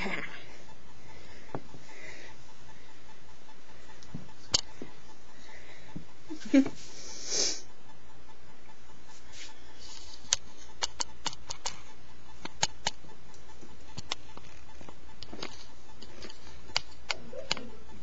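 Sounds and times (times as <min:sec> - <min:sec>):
ferrets clicking and tapping: 0:10.1 - 0:18.0.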